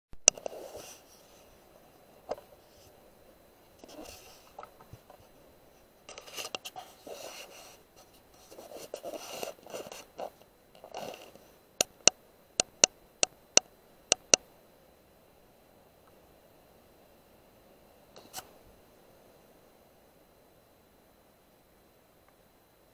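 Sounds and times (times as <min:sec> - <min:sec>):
scratching and rubbing handling noise: 0:00.4 - 0:03.1, 0:03.7 - 0:11.6.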